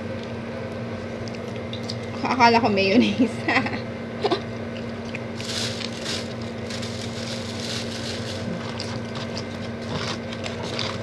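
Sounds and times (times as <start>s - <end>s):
low electrical hum: 0.0s - 11.0s
plastic packet rustling: 5.3s - 11.0s.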